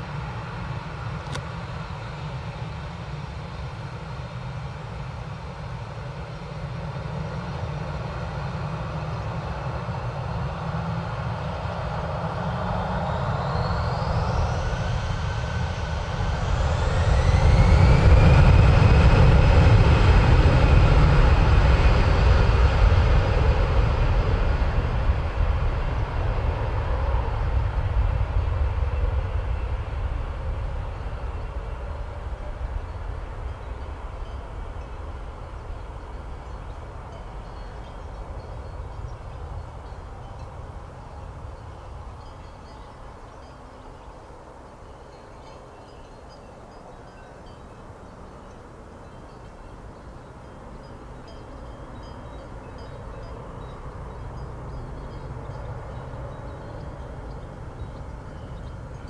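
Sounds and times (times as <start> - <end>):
jet engines spooling up: 6.6 - 37.0.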